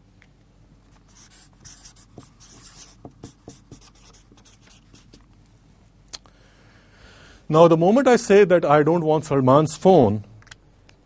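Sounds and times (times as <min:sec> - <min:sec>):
marker scratching on paper: 0:01.1 - 0:05.2.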